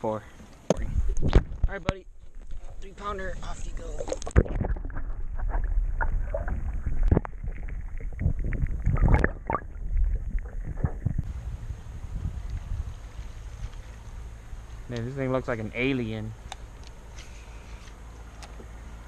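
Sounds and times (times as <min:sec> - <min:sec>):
muffled underwater rumble: 0:00.7 - 0:13.4.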